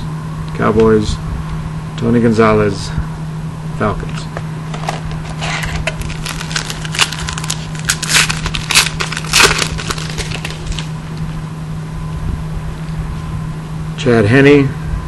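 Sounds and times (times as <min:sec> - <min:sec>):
foil wrapper crinkling: 0:04.7 - 0:11.2.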